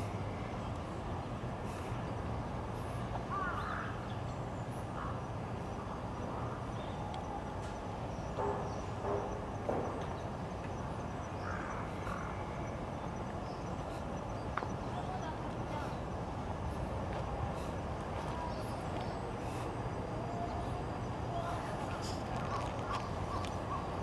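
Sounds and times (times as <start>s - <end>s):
distant city traffic hum: 0.0s - 24.0s
bird calls: 6.4s - 16.8s, 17.4s - 24.0s.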